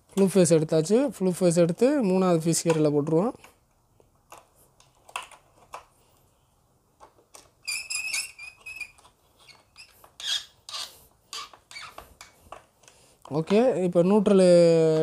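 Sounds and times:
clicks and scrapes of wiring: 0:02.6 - 0:06.3, 0:07.0 - 0:13.8.

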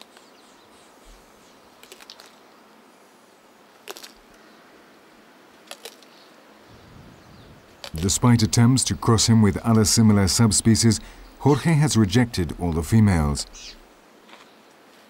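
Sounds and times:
faint hiss: 0:00.0 - 0:15.0
tortoise chewing crunches: 0:01.8 - 0:02.4, 0:03.8 - 0:04.4, 0:05.6 - 0:06.2, 0:07.6 - 0:09.1.

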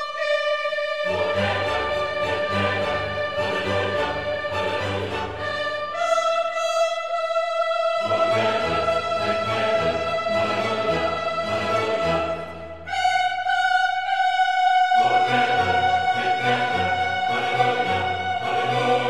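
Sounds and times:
strings holding sustained notes: 0:00.0 - 0:19.0.

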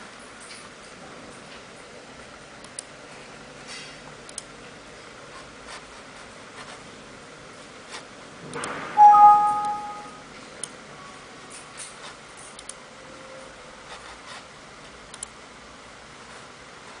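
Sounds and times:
computer mouse clicks: 0:04.3 - 0:04.5, 0:15.1 - 0:15.4
two-note warning chime: 0:09.0 - 0:10.2.

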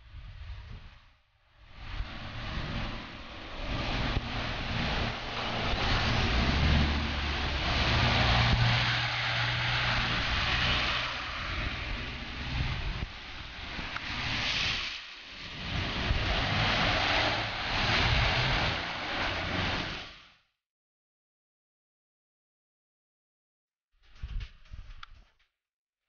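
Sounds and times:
low engine hum: 0:01.6 - 0:20.3
cars driving through flood water: 0:01.8 - 0:20.3.

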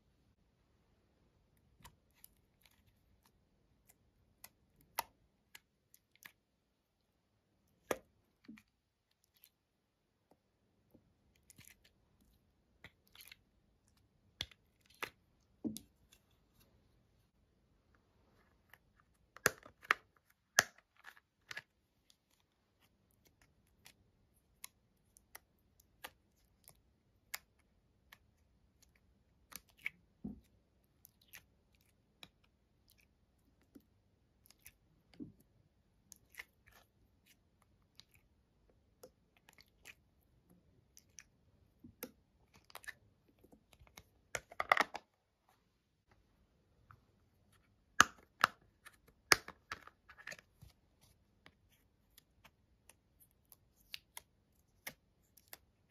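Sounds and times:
slime squishing by hand: 0:18.0 - 0:45.0.

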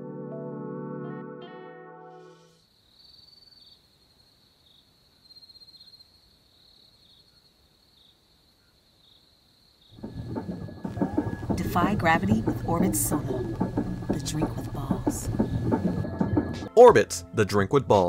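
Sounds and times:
crickets chirping: 0:02.6 - 0:16.4.

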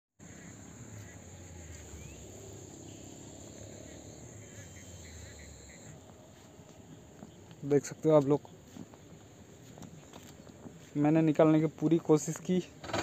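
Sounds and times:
insects trilling: 0:00.2 - 0:09.7.

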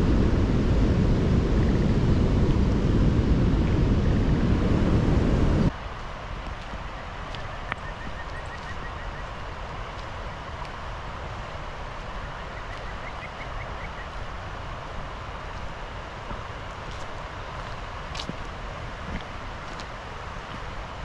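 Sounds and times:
wind on microphone: 0:00.0 - 0:21.0
rocky river rushing: 0:05.7 - 0:21.0.

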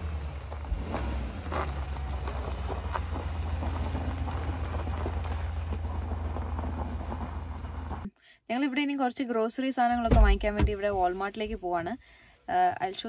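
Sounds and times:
engine rumbling: 0:00.0 - 0:08.1
gravel crackling under tyres: 0:00.0 - 0:08.1.

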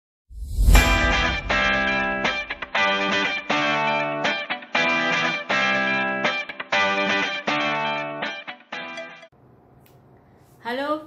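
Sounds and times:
strummed guitar chords: 0:00.8 - 0:09.3.

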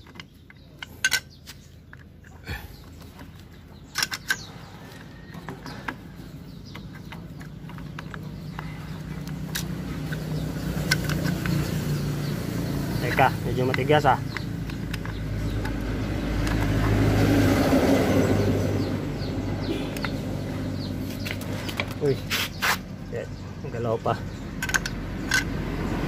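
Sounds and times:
metal parts clicking and knocking: 0:00.0 - 0:02.3, 0:03.2 - 0:11.9, 0:13.1 - 0:16.7, 0:24.6 - 0:25.6
road traffic rumble: 0:00.0 - 0:26.0.

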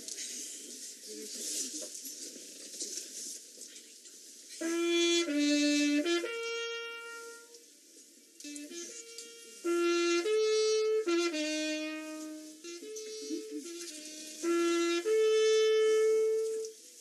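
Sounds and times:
echo of horn notes: 0:04.6 - 0:07.5, 0:08.4 - 0:16.7
flugelhorn notes: 0:04.6 - 0:07.6, 0:08.4 - 0:16.9.

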